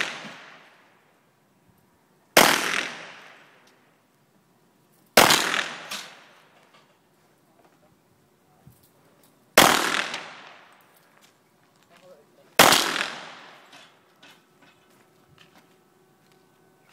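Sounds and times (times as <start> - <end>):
pistol shots with echo: 0.0 - 0.8, 2.4 - 3.6, 5.2 - 6.4, 9.6 - 10.7, 12.6 - 13.8.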